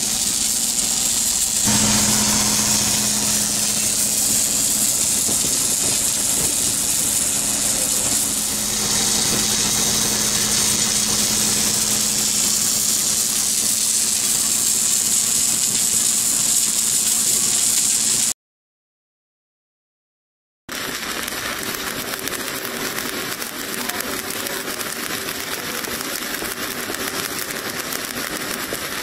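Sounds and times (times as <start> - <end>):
constant hiss: 0.0 - 18.2
welding machine hum: 0.0 - 18.3, 20.7 - 29.0.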